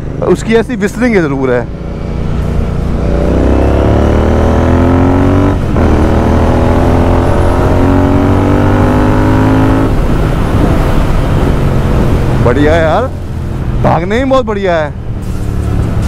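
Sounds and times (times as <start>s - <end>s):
motorcycle engine accelerating: 1.2s - 13.9s.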